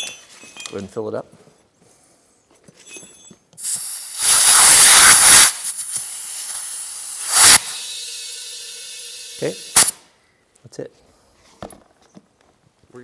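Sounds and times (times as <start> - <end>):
compressed air hissing from hose: 3.6 - 10.0.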